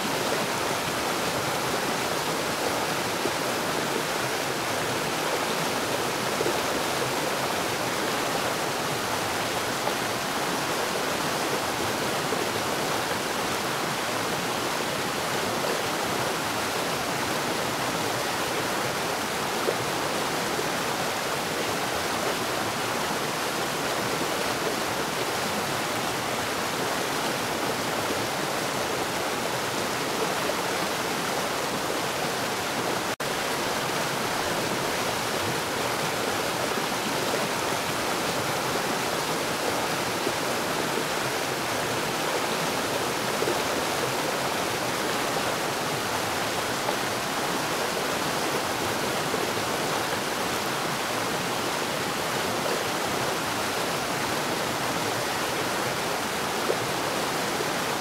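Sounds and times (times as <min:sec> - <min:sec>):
stream water rushing: 0:00.0 - 0:58.0.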